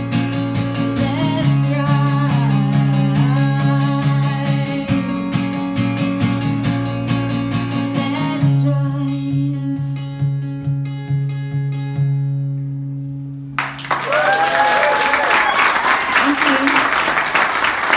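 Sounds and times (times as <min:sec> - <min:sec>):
acoustic guitar strumming: 0:00.0 - 0:13.5
audience applause and cheers: 0:13.6 - 0:17.9.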